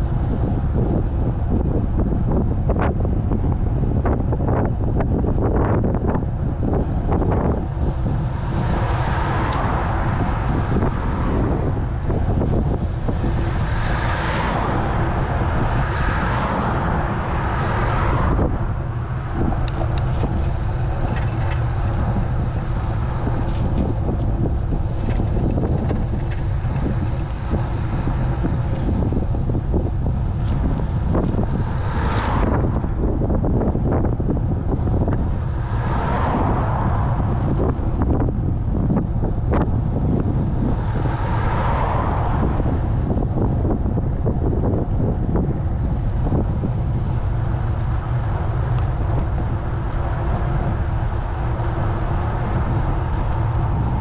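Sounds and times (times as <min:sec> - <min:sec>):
road and traffic hiss: 0:00.0 - 0:54.0
wind buffeting microphone: 0:00.0 - 0:54.0.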